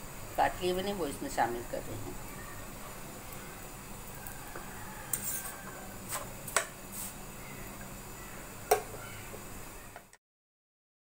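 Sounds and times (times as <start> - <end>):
spoon scraping frying pan: 4.2 - 7.2.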